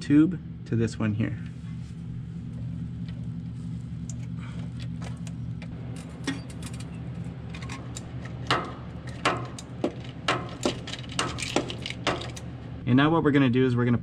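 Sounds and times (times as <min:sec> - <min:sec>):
steady low hum: 0:00.0 - 0:14.0
metal clicks and clinks: 0:06.0 - 0:12.5.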